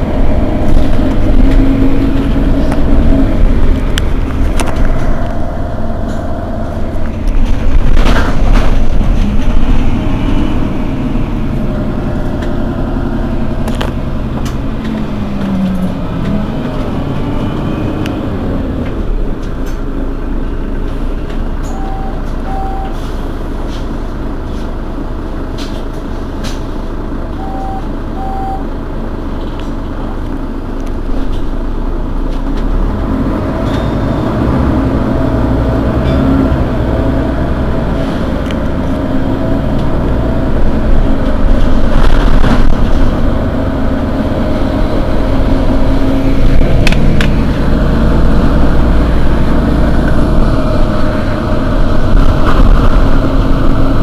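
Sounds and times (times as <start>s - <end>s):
bus diesel engine idling: 0.0s - 54.0s
short beeps: 21.7s - 23.0s, 27.4s - 28.6s.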